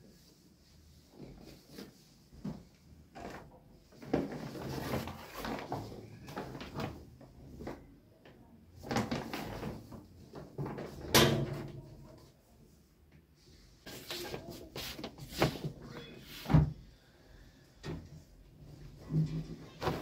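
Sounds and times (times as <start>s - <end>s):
clothes rustling and bumping: 1.0s - 8.1s, 8.7s - 12.0s, 13.8s - 16.8s, 17.9s - 20.0s.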